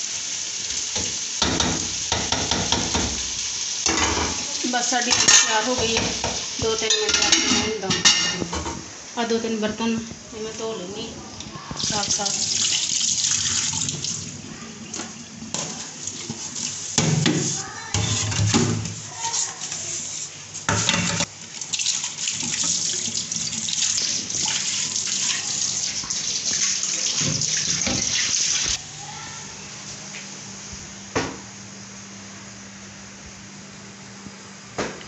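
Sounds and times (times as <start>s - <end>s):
tap water running into sink: 11.4s - 14.3s, 20.7s - 28.8s.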